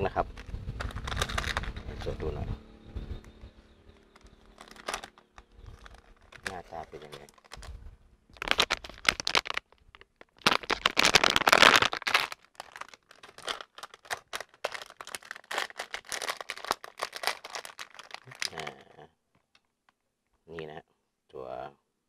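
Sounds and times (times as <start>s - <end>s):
plastic bags crinkling: 0.8s - 1.9s, 4.1s - 18.9s.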